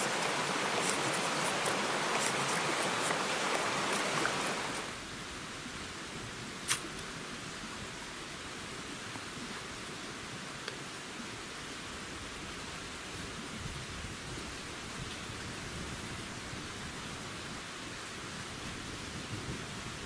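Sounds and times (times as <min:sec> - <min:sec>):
stream rushing over rocks: 0:00.0 - 0:05.2.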